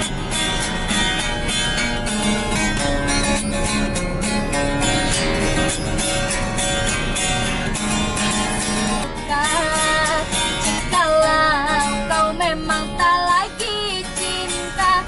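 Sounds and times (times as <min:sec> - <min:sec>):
acoustic guitar strumming: 0:00.0 - 0:15.0
woman singing: 0:09.2 - 0:15.0.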